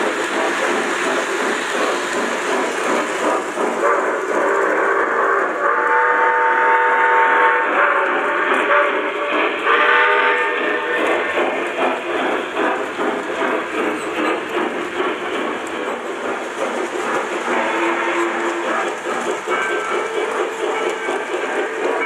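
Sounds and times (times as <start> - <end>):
wheels clicking over track: 0.0 - 4.9, 10.3 - 22.0
train rumbling: 0.0 - 22.0
model train whistle: 4.8 - 11.1, 17.5 - 22.0.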